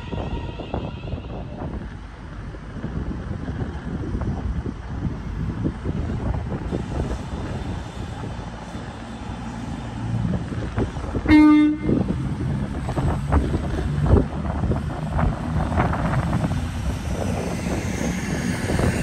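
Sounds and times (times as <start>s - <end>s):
train engines rumbling: 0.0s - 19.0s
train horn blast: 11.2s - 12.1s.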